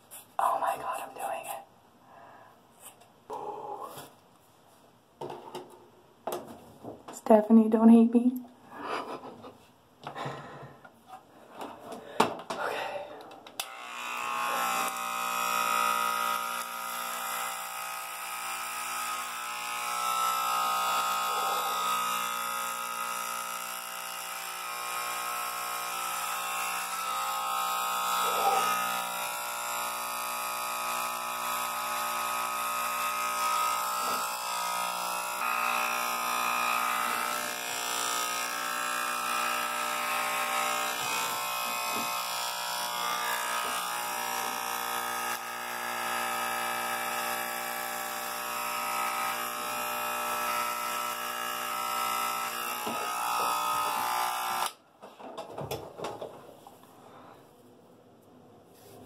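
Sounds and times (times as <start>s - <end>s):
electric hair clippers buzzing: 13.6s - 54.8s.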